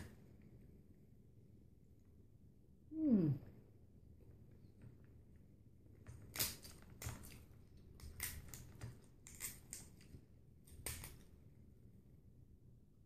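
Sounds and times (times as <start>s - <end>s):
crab shell cracking: 6.0s - 11.3s.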